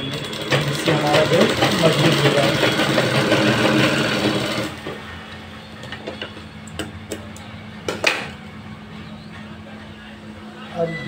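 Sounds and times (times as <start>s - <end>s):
sewing machine stitching: 0.0s - 4.9s.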